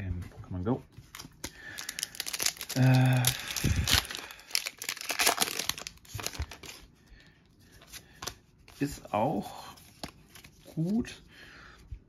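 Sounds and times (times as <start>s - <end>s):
foil wrapper tearing and crinkling: 1.1s - 6.8s.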